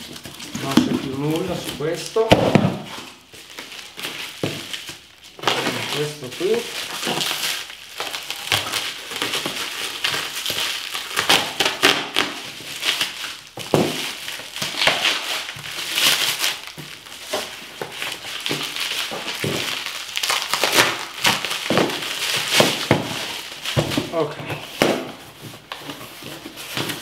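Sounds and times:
packing tape ripping: 0:00.0 - 0:27.0
plastic wrapping crinkling: 0:00.0 - 0:27.0.

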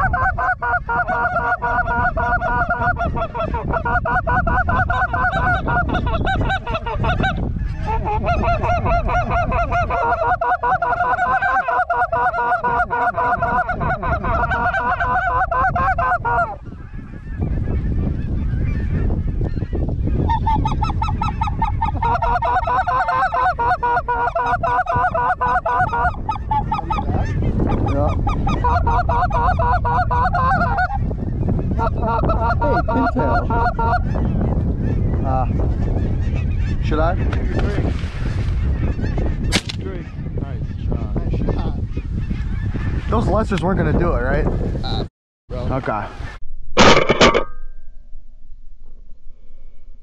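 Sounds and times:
flock of geese calling: 0:00.0 - 0:37.7, 0:38.6 - 0:42.7.

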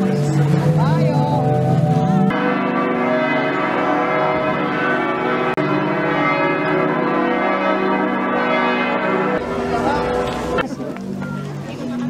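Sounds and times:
church bells pealing: 0:00.0 - 0:12.0.

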